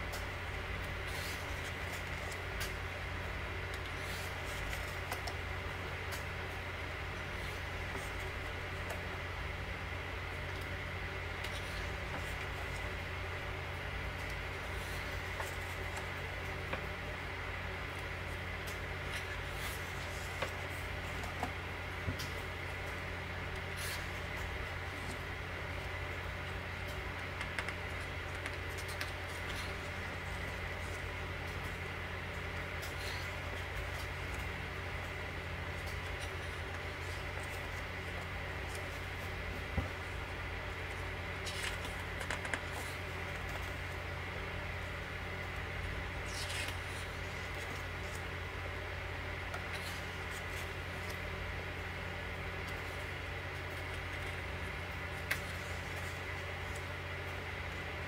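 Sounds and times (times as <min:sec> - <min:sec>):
low hum of room noise: 0:00.0 - 0:58.0
paper rustling: 0:03.7 - 0:05.4, 0:26.9 - 0:44.0
paper page rustling: 0:40.8 - 0:43.8.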